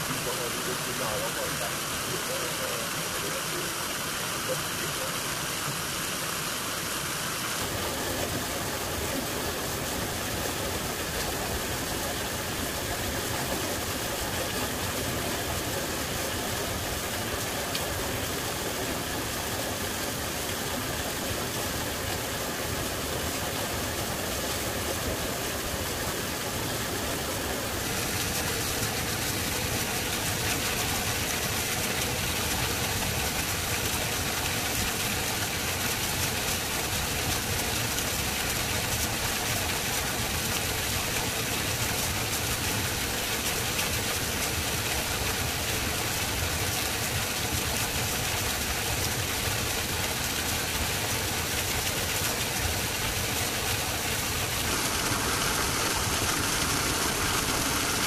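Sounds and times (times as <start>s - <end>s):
engine idling: 53.8s - 58.0s.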